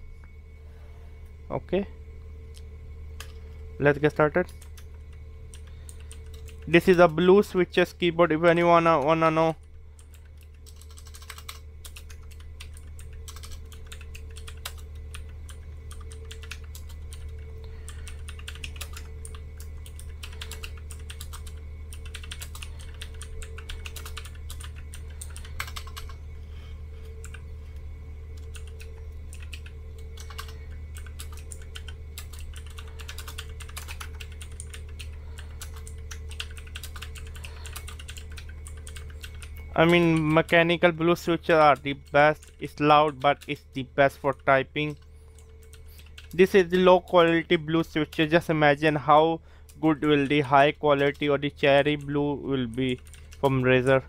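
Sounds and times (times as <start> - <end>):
steady low hum: 0.0 - 54.0
mechanical keyboard typing: 10.0 - 26.2, 28.4 - 40.6, 44.3 - 46.5, 49.7 - 54.0.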